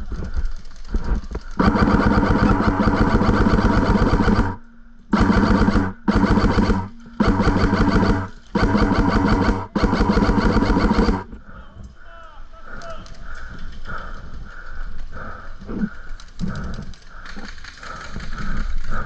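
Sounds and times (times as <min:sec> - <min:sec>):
airsoft rifle firing bursts: 0:01.4 - 0:11.3.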